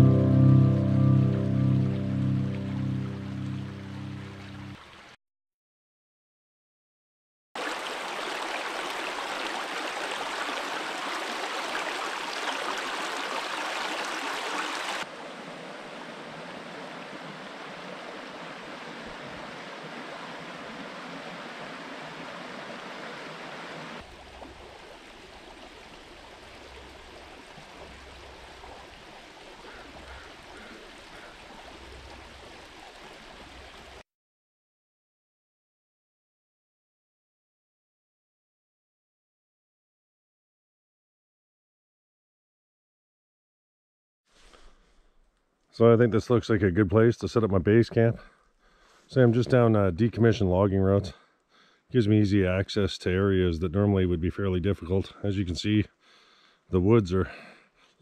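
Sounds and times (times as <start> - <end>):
creek running over stones: 3.2 - 5.2, 7.6 - 34.0.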